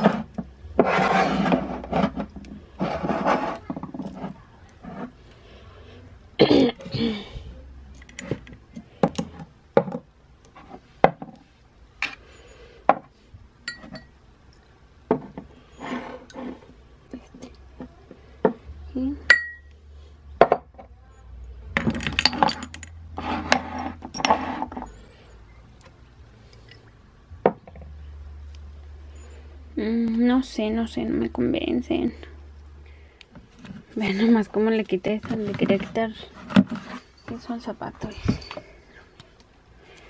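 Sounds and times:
glass bottles clinking on a surface: 13.6s - 14.2s, 19.3s - 19.7s, 21.8s - 22.9s, 36.7s - 38.8s.

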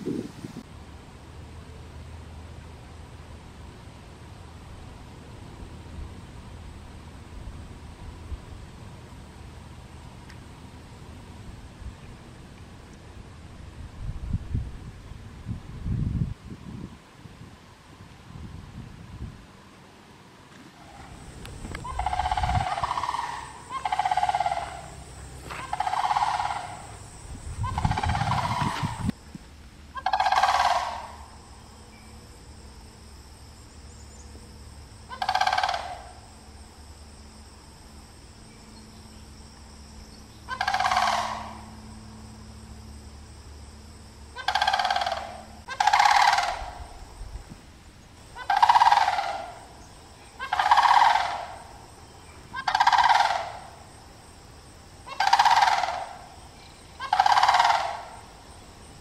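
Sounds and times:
bird calling: 20.8s - 29.1s, 29.9s - 31.3s, 35.1s - 36.2s, 40.2s - 41.8s, 44.3s - 47.0s, 48.3s - 53.9s, 55.0s - 58.4s.

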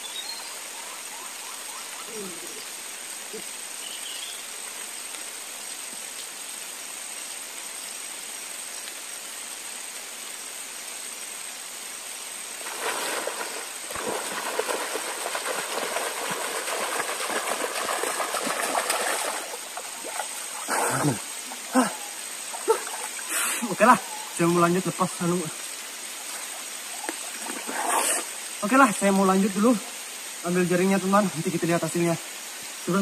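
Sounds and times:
flowing river water: 0.0s - 33.0s
splashing and dripping: 12.3s - 24.4s, 25.6s - 29.1s.

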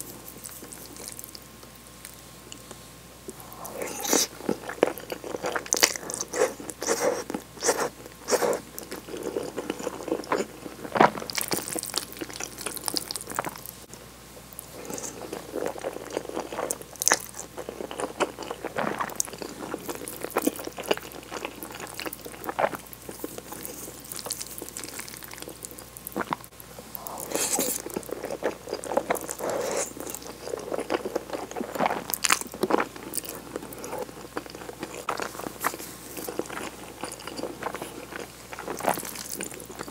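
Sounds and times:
wet chewing: 14.8s - 39.9s
slurping noodles: 27.0s - 30.1s.

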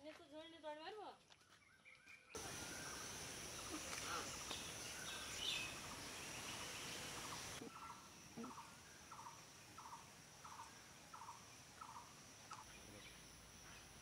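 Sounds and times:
faint rattling animal call: 6.7s - 13.9s.

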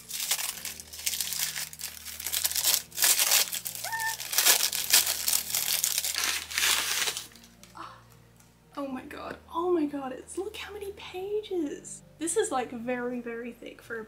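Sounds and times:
packing paper crinkling: 0.0s - 7.8s.

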